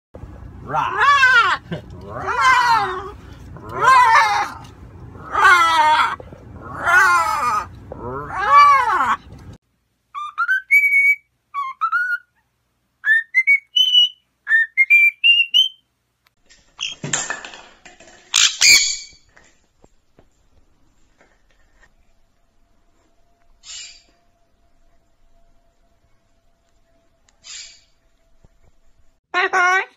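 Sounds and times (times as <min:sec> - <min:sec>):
parrot squawking: 0:00.6 - 0:09.2, 0:10.2 - 0:12.3, 0:18.3 - 0:19.2, 0:23.6 - 0:24.2, 0:27.4 - 0:28.0
bird whistling short rising notes: 0:23.6 - 0:24.1.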